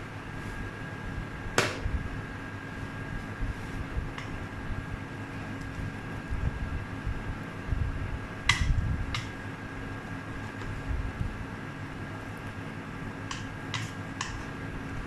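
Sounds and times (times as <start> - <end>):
electric hob fan hum: 0.0 - 15.0
spatula knocking against pot: 13.2 - 14.4
wooden spatula stirring soup: 13.2 - 14.6.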